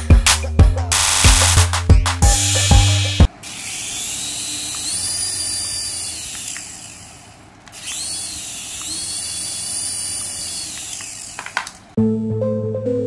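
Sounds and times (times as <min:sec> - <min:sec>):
toy helicopter rotor motors whining: 0:02.3 - 0:12.0.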